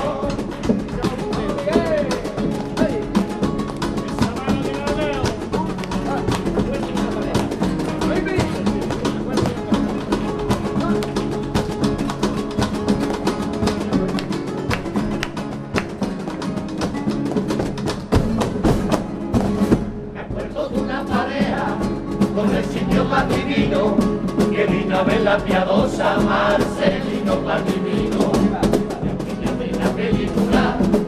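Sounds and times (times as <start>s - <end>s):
group of voices singing: 0.0s - 3.1s, 20.1s - 31.0s
acoustic guitars strumming: 0.0s - 31.0s.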